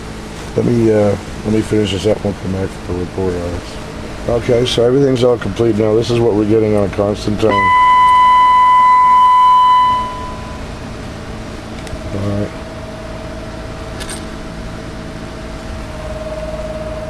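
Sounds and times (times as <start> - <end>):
faint hum and hiss: 0.0 - 17.0
steady whistle-like test tone: 7.5 - 10.8, 15.8 - 17.0.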